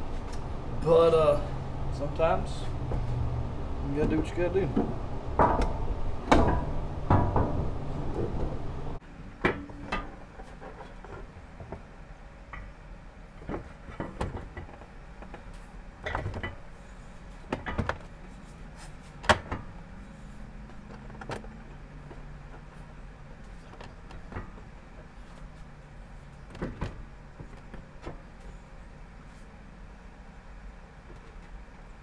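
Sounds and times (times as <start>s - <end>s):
metal bumper knocks and clanks: 4.2s - 8.8s, 13.4s - 16.6s.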